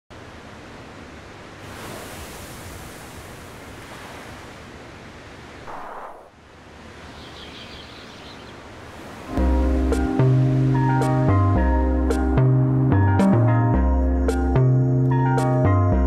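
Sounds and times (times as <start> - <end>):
ocean surf: 0.2 - 11.3.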